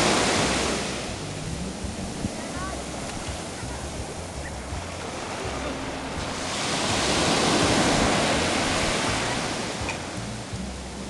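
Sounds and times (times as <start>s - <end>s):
sea surf washing up beach: 0.0s - 11.0s.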